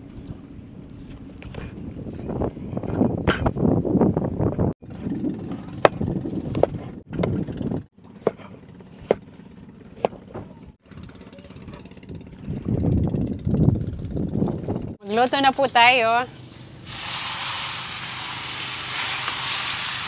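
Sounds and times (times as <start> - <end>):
steady low rumble: 9.4 - 15.0.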